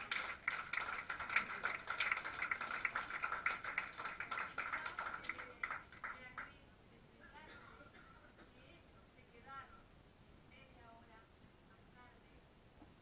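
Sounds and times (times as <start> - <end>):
rhythmic hand clapping: 0.0 - 6.5.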